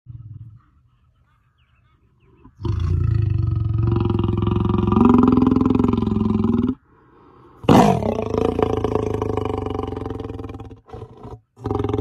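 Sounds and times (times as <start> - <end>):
lion roaring: 7.6 - 12.0.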